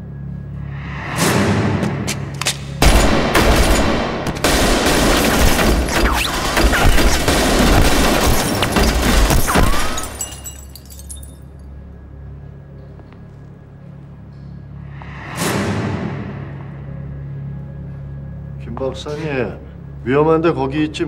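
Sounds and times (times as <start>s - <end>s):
rapid automatic gunfire: 2.8s - 9.3s
heavy bang: 15.0s - 16.9s.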